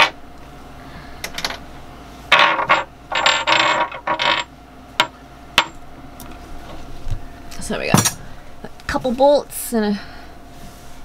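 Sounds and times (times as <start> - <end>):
metal tools and bolts rattling: 2.3 - 5.8.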